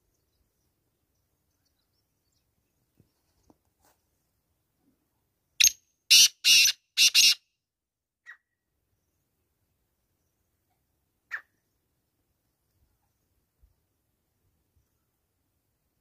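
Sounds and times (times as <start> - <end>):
bird harsh rasping call: 5.6 - 7.4.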